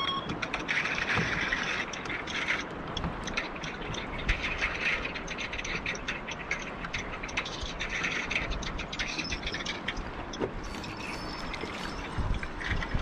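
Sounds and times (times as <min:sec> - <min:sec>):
water slapping against boat hull: 0:00.0 - 0:13.0
strong wind: 0:06.8 - 0:13.0.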